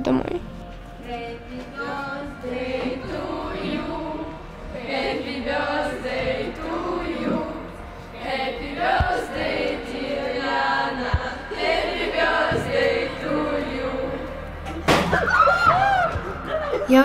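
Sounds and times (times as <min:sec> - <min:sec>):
girls singing together: 0:01.0 - 0:16.8
excited squeals: 0:15.1 - 0:16.9.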